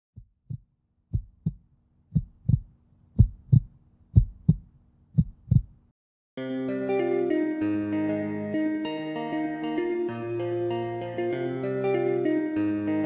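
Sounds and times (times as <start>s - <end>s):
heartbeat thumps: 0.2s - 5.8s
music: 6.4s - 13.0s.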